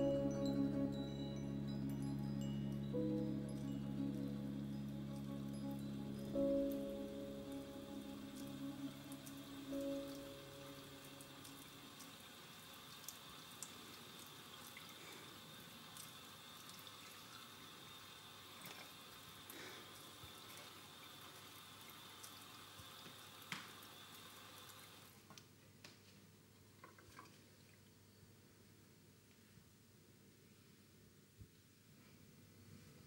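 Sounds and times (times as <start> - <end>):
music: 0.0 - 11.8
thin high whine: 0.0 - 11.9.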